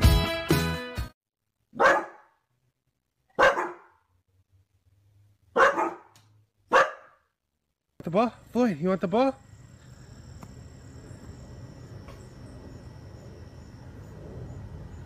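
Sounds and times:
dog barking: 1.7 - 2.4, 3.3 - 4.1, 5.5 - 7.3.

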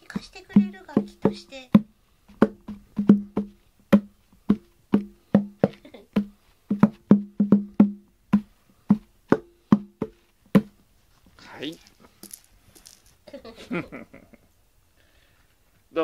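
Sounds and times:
hand tapping hollow cardboard: 0.0 - 10.8.

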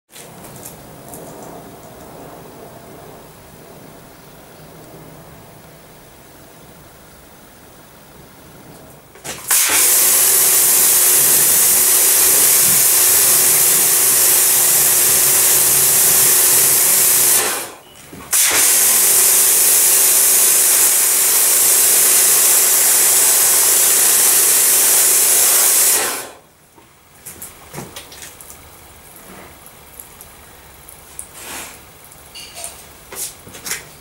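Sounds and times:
pump humming: 9.0 - 32.6
pressure washer jet hissing: 9.2 - 26.4, 31.2 - 32.0.

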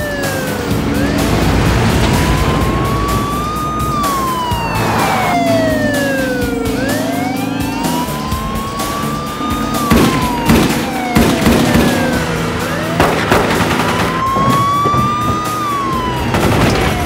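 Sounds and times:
dramatic music: 0.0 - 17.0
police siren wailing: 0.0 - 17.0
vehicle noise: 0.0 - 17.0
sharp bangs: 7.8 - 17.0.

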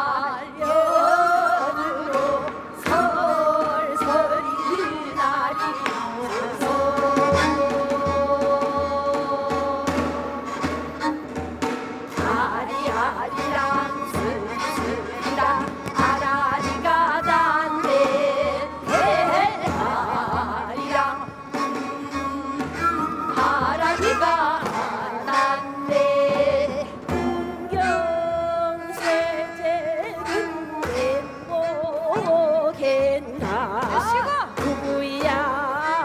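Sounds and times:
woman singing folk song: 0.0 - 11.1, 12.1 - 36.0
bowed string instrument: 0.0 - 36.0
drums beating steady time: 6.0 - 28.4.

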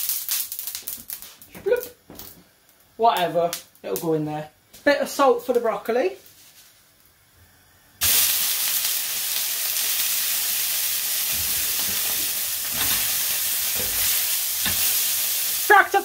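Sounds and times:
steak sizzling on griddle pan: 8.0 - 16.0.

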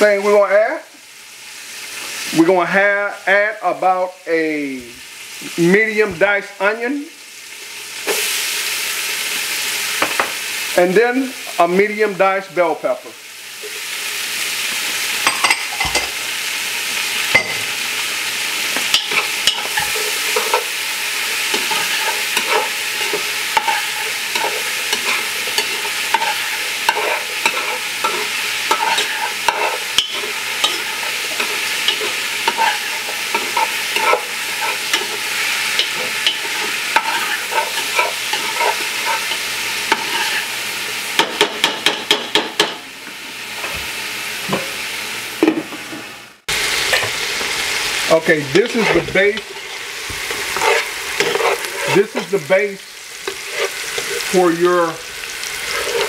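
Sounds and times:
food sizzling in oil: 0.0 - 56.0
spoon scraping and clicking on pot: 24.4 - 30.8.

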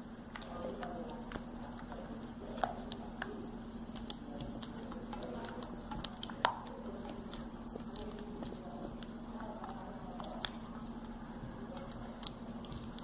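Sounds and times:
spatula squishing chocolate: 0.0 - 13.0
spatula clicking on metal bowl: 2.6 - 10.6.

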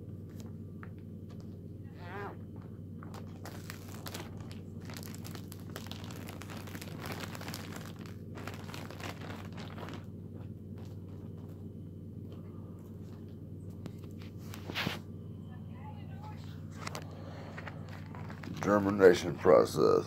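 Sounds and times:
steady low hum: 0.0 - 20.0
plastic bag crinkling: 3.0 - 11.5, 16.8 - 19.2.

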